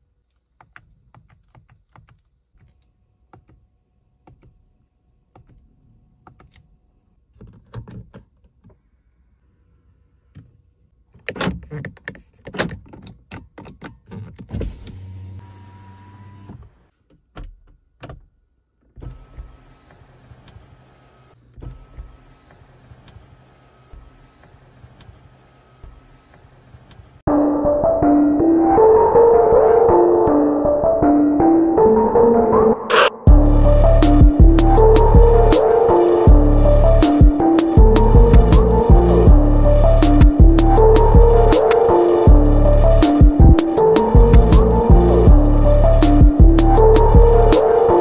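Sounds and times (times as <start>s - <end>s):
electric window motor: 14.6s - 16.9s, 19.0s - 27.0s, 33.3s - 43.1s
switches clicking: 35.0s - 39.0s.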